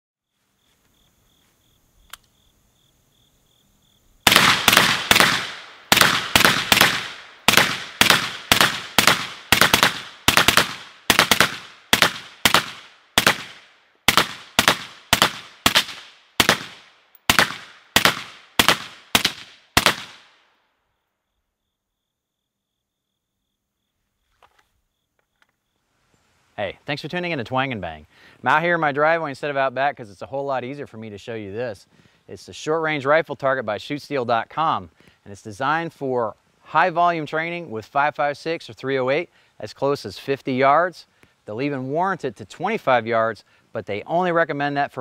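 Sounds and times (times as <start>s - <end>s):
rifle shots echoing: 4.2s - 20.4s.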